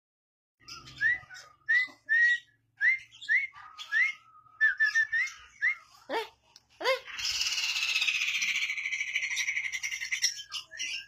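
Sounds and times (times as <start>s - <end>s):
lovebird whistling and chattering: 0.6s - 11.0s.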